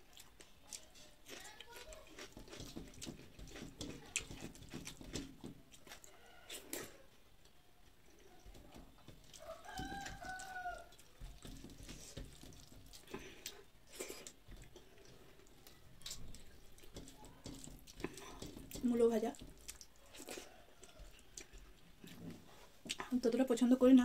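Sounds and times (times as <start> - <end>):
fingers mixing rice on steel plate: 0.0 - 23.0
chewing: 0.0 - 23.1
rooster crowing: 9.3 - 11.0.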